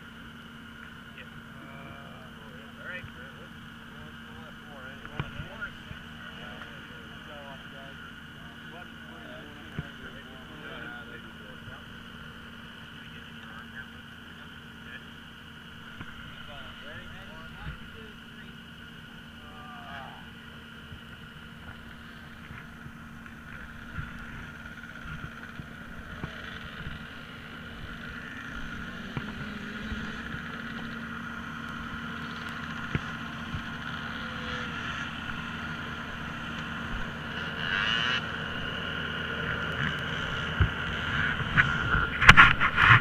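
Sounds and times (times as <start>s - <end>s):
ambulance engine idling: 0.0s - 43.0s.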